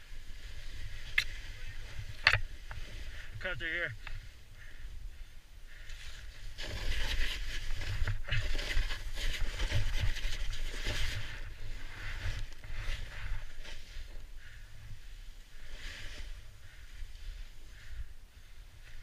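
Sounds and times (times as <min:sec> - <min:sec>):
snowboard slicing through powder: 0:06.0 - 0:14.1, 0:15.1 - 0:17.6.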